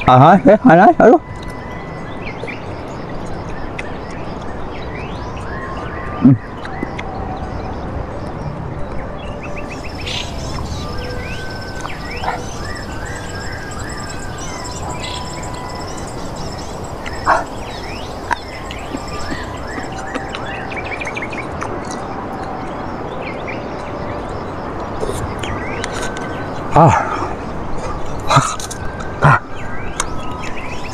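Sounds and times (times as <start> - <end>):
birds chirping and trilling: 0.0 - 30.9
background hiss: 9.6 - 21.3.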